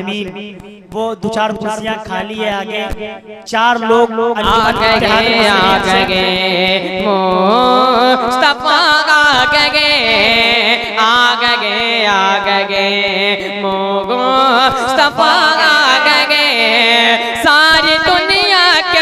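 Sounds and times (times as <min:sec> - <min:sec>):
boy singing into a microphone: 0:00.0 - 0:19.0
steady low drone note: 0:04.4 - 0:06.9.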